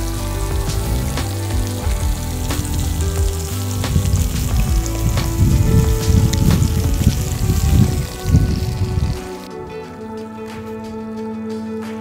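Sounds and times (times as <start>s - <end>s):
grease sizzling on griddle: 0.0s - 9.5s
background music with steady beat: 0.0s - 12.0s.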